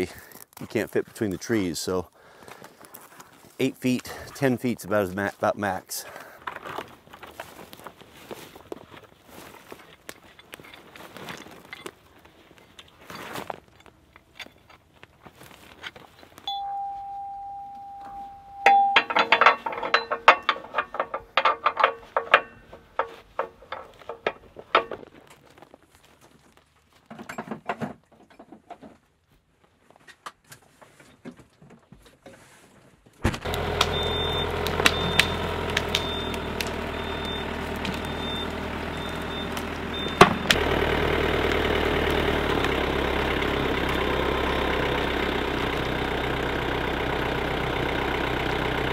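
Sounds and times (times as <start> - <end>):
short high beeps: 16.5 - 19.1, 36.0 - 40.5
steady tone: 16.5 - 19.3
rattling clicks: 18.7 - 25.0
engine running: 33.4 - 48.9.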